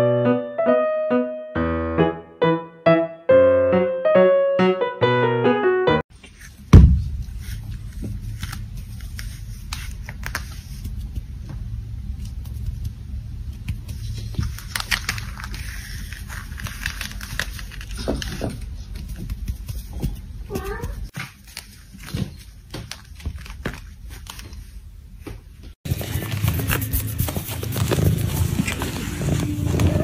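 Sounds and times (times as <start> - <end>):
loud thump: 6.7 - 7.4
kitten paws tapping on a mat: 18.3 - 21.3.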